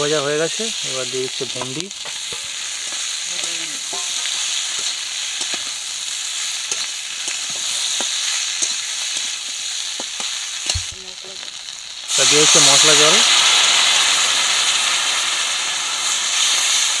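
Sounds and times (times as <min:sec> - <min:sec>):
vegetables sizzling in hot oil: 0:00.0 - 0:17.0
metal spatula scraping pan: 0:03.8 - 0:05.7.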